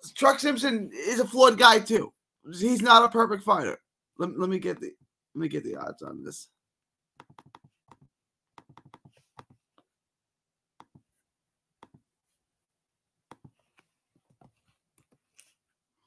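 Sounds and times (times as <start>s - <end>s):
computer keyboard typing: 7.2s - 9.5s.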